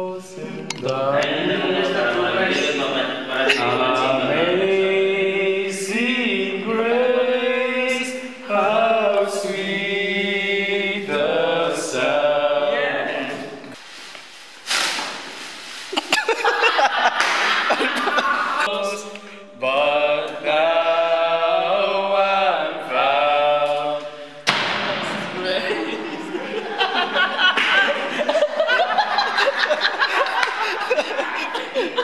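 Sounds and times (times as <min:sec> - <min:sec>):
voices singing a cappella: 0:00.0 - 0:13.8, 0:16.4 - 0:32.0
loud laughter: 0:03.3 - 0:03.9, 0:16.0 - 0:18.7, 0:25.5 - 0:32.0.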